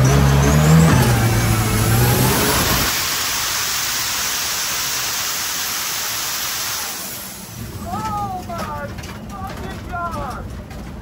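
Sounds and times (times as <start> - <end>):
loud steady rushing noise: 0.0 - 10.5
diesel engine running hard: 0.0 - 11.0.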